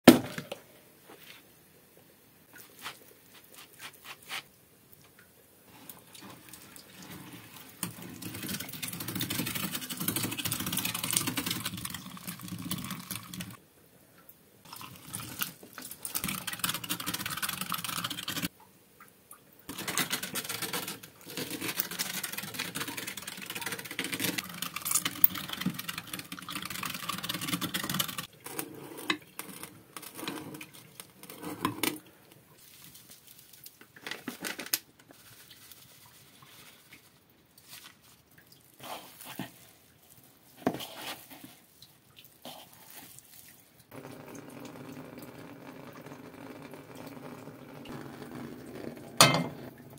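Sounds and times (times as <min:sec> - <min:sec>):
manual meat grinder clattering: 0:07.8 - 0:13.6, 0:16.1 - 0:18.5, 0:19.7 - 0:28.6.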